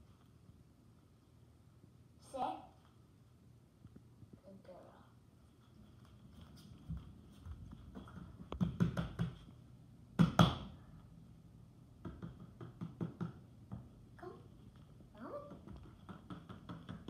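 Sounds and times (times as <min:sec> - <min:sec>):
taps and knocks on hard floor: 0:07.9 - 0:09.5, 0:10.2 - 0:10.7, 0:12.0 - 0:13.9, 0:15.5 - 0:17.0.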